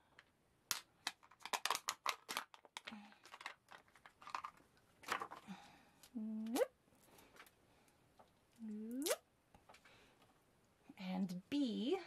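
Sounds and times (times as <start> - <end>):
plastic packaging crinkling: 0.7 - 5.6.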